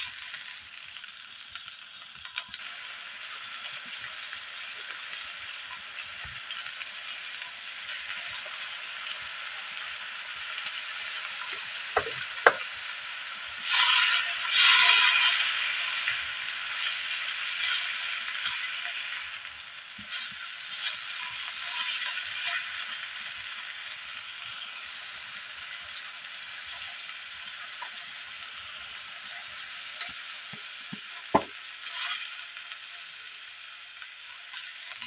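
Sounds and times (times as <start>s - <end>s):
greens sizzling in a wok: 0.0s - 35.0s
sharp knock on pan: 12.0s - 12.6s, 31.3s - 31.5s
spatula scraping pan: 13.6s - 19.3s, 20.0s - 23.0s, 29.3s - 32.5s, 34.4s - 35.0s.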